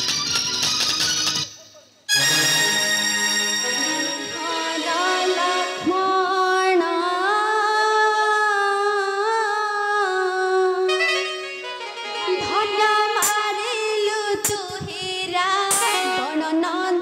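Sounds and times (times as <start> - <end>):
musical accompaniment: 0.0 - 7.0, 10.8 - 14.2
girl singing: 4.2 - 11.0, 12.3 - 17.0.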